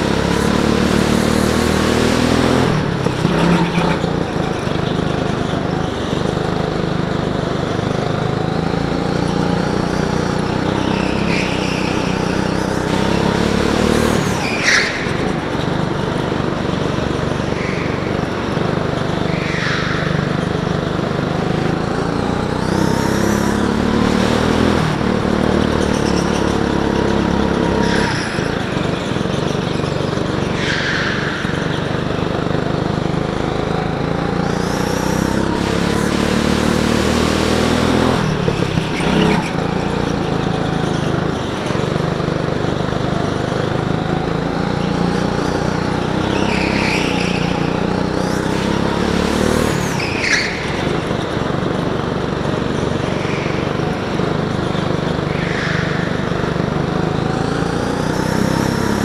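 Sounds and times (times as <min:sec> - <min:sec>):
go-kart engine revving: 0:00.0 - 0:59.0
tyres squealing: 0:01.2 - 0:06.5, 0:08.2 - 0:33.3, 0:44.0 - 0:59.0.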